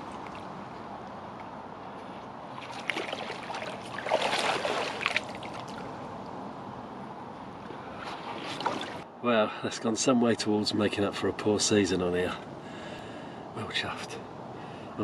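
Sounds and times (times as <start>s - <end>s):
water splashing and sloshing: 0.0s - 9.1s.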